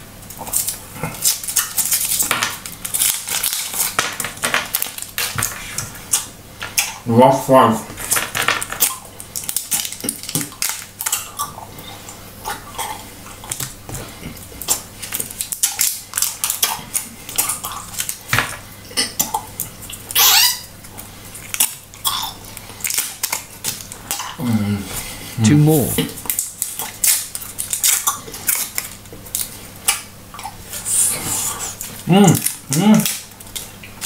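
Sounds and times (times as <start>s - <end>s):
paper wrappers crinkling: 0.5s - 6.2s.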